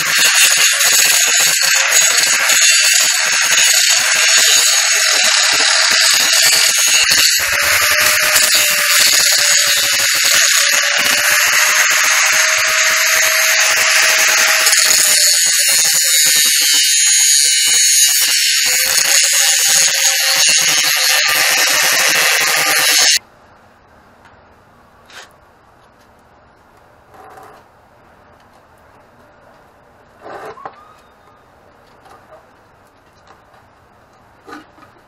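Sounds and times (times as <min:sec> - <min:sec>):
angle grinder grinding steel: 0:00.0 - 0:23.2.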